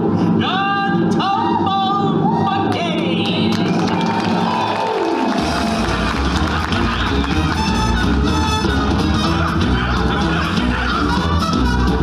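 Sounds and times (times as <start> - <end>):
upbeat stage-show music: 0.0 - 12.0
heavy bass beat: 5.4 - 12.0.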